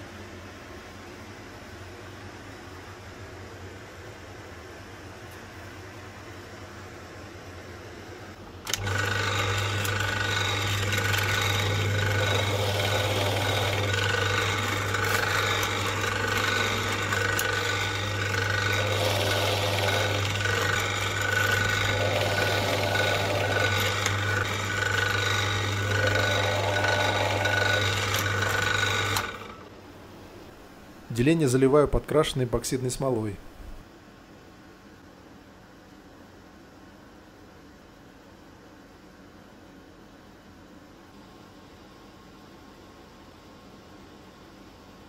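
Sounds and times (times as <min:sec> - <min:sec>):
drill press motor hum: 0:08.4 - 0:31.0
bit rasping through wood: 0:08.7 - 0:29.6.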